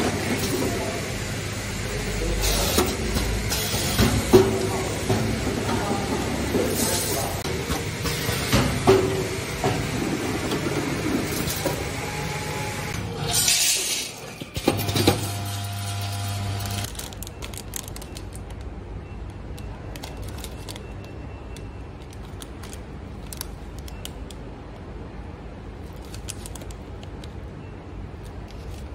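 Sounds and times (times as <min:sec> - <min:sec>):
packing machine humming: 0:00.0 - 0:24.4
plastic packets crinkling: 0:16.9 - 0:18.8, 0:19.4 - 0:24.5, 0:25.8 - 0:27.4.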